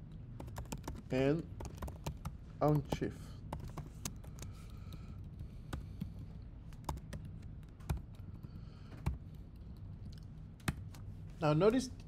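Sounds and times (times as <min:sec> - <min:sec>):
faint steady low hum: 0:00.0 - 0:12.0
typing on computer keyboard: 0:00.4 - 0:06.1, 0:06.7 - 0:08.4.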